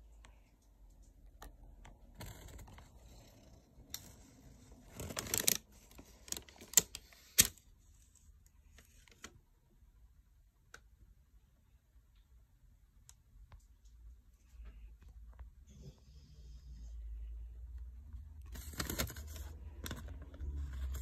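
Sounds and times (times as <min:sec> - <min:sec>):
rustling handling noise: 0:18.2 - 0:21.0.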